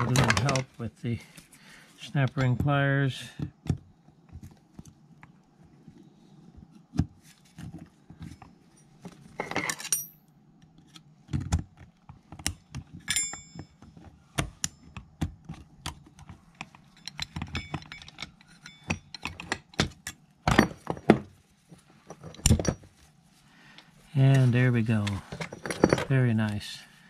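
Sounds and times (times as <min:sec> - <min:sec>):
metal tools clicking and clinking: 0:00.0 - 0:00.7, 0:08.8 - 0:10.2, 0:13.1 - 0:13.8, 0:16.6 - 0:21.2, 0:22.0 - 0:22.9, 0:25.0 - 0:26.2
ringing metallic clinks: 0:09.8 - 0:10.2, 0:13.1 - 0:13.8, 0:16.9 - 0:19.3.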